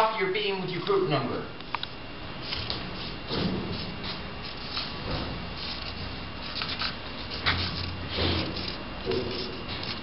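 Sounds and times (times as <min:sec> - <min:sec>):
marker scratching on concrete: 0:05.6 - 0:10.0.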